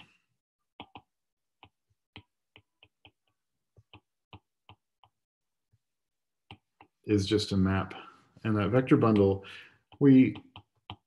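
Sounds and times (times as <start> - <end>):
stylus tapping on a tablet: 0.8 - 5.2, 6.4 - 7.0, 9.0 - 11.0.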